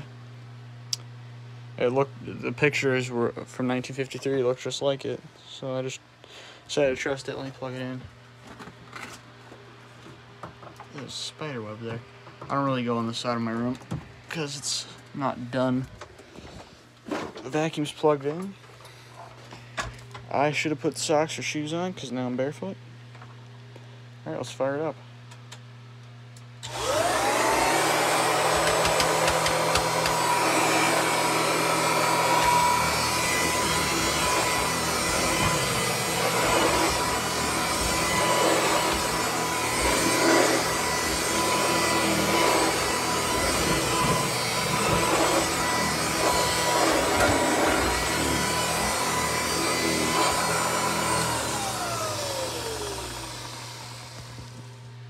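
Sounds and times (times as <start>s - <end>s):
vacuum cleaner motor whine: 26.6s - 55.0s.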